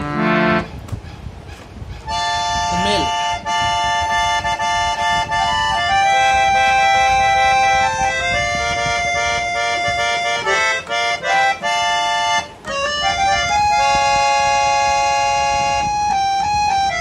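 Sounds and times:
harmonium notes and chords: 0.0s - 0.9s, 1.6s - 17.0s.

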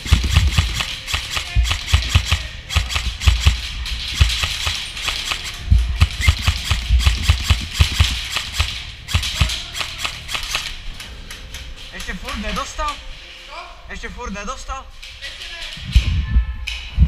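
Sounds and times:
airsoft gunfire clicks and snaps: 0.0s - 13.0s.

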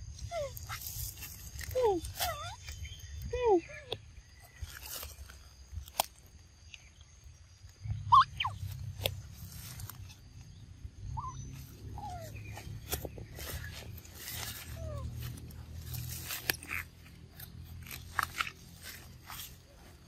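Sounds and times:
handheld camera rumble: 0.0s - 20.0s
footsteps through leafy ground: 0.6s - 3.0s, 4.4s - 5.7s, 8.5s - 10.4s, 11.4s - 20.0s
short chirping calls: 6.6s - 19.7s.

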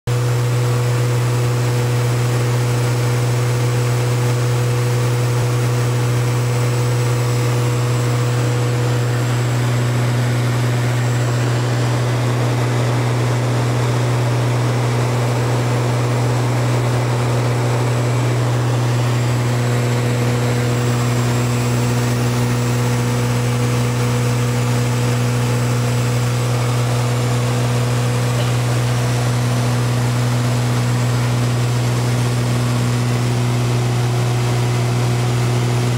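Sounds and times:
aircraft engines droning in cabin: 0.1s - 35.9s.

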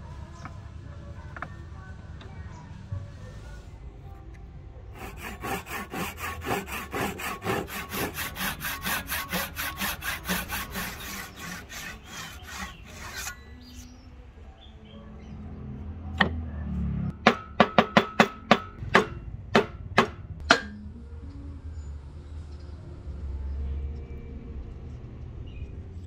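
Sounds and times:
hand saw cutting wood: 5.0s - 13.9s
sharp knocks: 17.2s - 20.8s.

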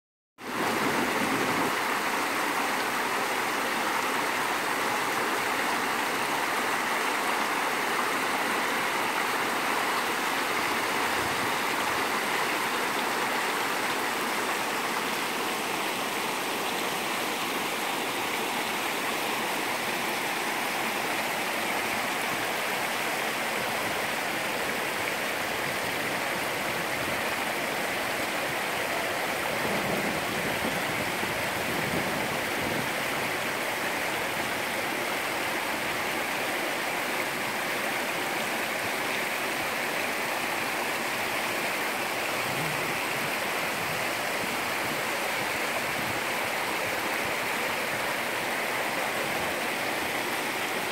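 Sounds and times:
stream rushing over rocks: 0.4s - 50.9s.

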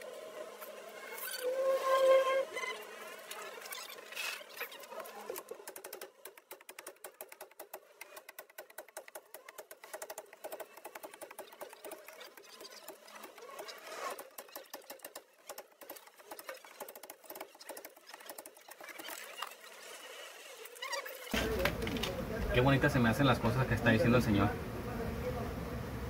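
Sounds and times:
rapid clicking and scratching: 2.6s - 22.2s.

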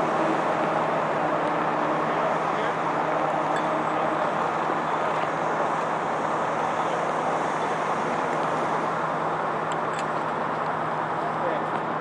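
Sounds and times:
freeway traffic: 0.0s - 12.0s.

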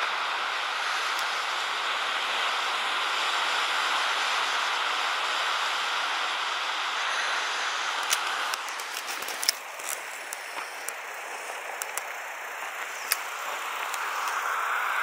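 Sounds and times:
sea and wind noise: 0.0s - 15.0s
camera handling clicks: 8.0s - 11.0s.

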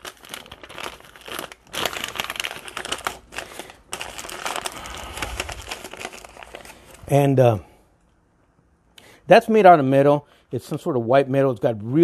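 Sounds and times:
plastic bag and paper crinkling: 0.0s - 7.4s.

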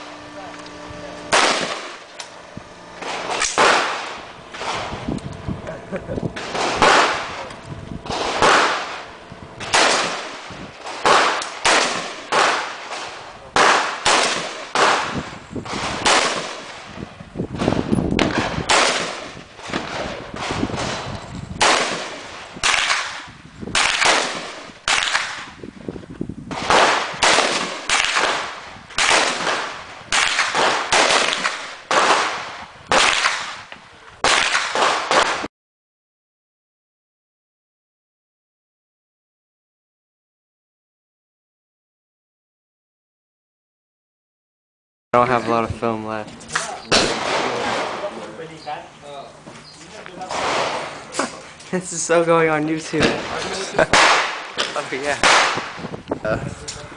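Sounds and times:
rifle shots echoing: 0.0s - 5.0s, 6.4s - 25.6s, 26.5s - 35.5s, 46.9s - 48.2s, 50.3s - 51.0s, 53.0s - 55.8s.

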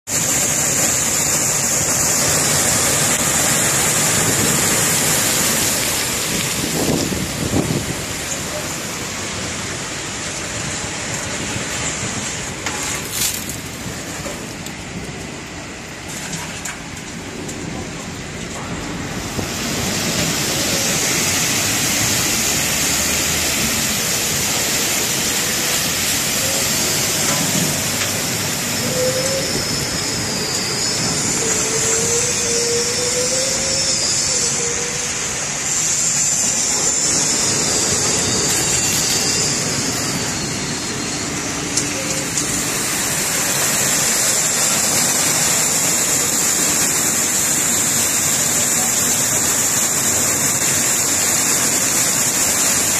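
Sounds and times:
water spray and machinery noise: 0.1s - 52.9s.

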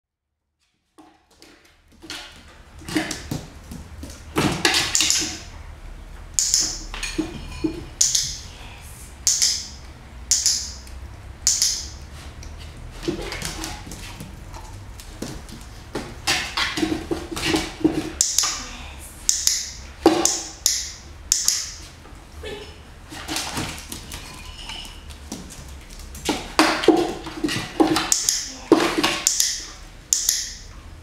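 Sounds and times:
sharp training marker sounds: 6.4s - 7.0s, 8.0s - 8.5s, 9.2s - 12.2s, 18.1s - 21.9s, 28.0s - 30.7s.

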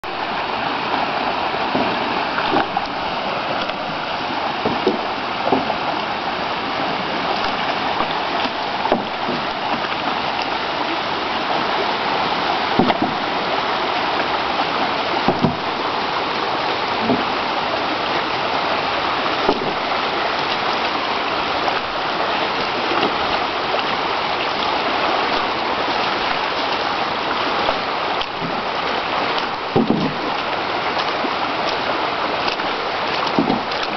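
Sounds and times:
river rapids rushing: 0.0s - 33.9s
pole splashing in water: 1.7s - 6.2s, 6.8s - 10.7s, 11.6s - 13.4s, 15.2s - 15.8s, 17.0s - 17.5s, 19.3s - 20.9s, 21.6s - 33.9s.

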